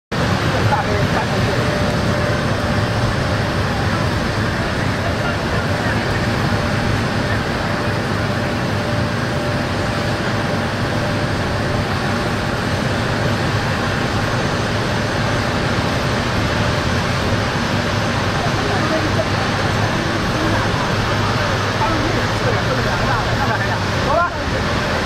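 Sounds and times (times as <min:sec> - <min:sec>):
jet engines rushing: 0:00.1 - 0:25.0
faint high whine: 0:00.2 - 0:25.0.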